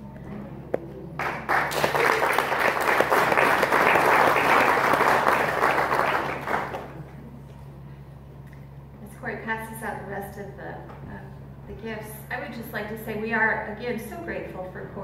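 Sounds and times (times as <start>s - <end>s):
congregation applauding: 1.2s - 7.1s.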